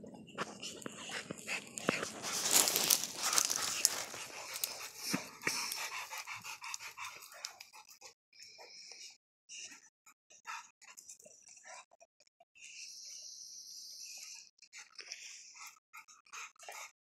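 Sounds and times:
dogs panting: 0:00.0 - 0:11.8, 0:14.1 - 0:17.0
paws scraping loose dirt: 0:00.3 - 0:07.7
dogs sniffing: 0:00.3 - 0:08.7.

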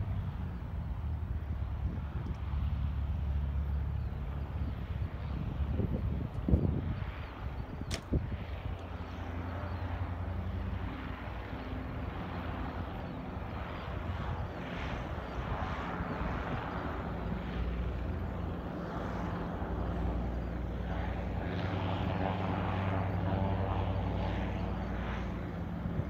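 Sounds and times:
airship propeller engines running: 0:00.0 - 0:26.0.

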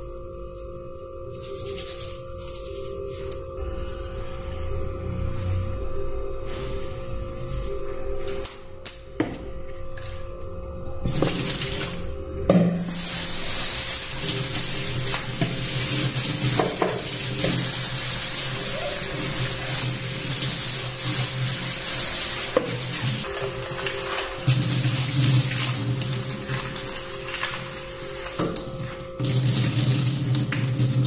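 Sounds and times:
kitchen tap running: 0:11.1 - 0:12.0, 0:12.8 - 0:31.0
water poured into steel sink: 0:23.8 - 0:31.0.

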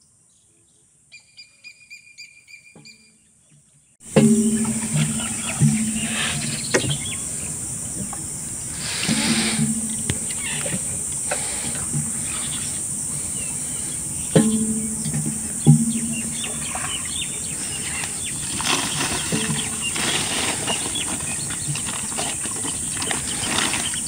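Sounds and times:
low hum: 0:04.0 - 0:21.6
high-pitched insect drone: 0:04.9 - 0:18.3.

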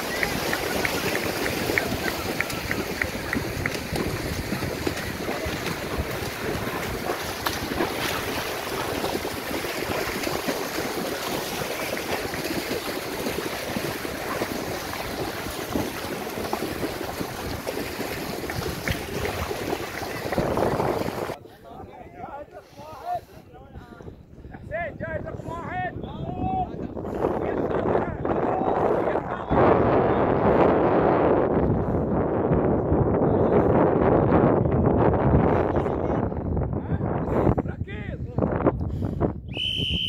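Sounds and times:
splashing through shallow water: 0:00.0 - 0:21.4
wind on microphone: 0:00.0 - 0:40.0.

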